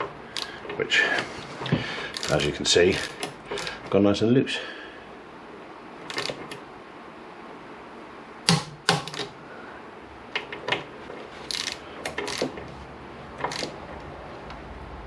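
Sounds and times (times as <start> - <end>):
socket ratchet clicking: 2.1 - 3.8, 6.1 - 6.6, 8.5 - 9.3, 11.5 - 12.6, 13.4 - 13.8.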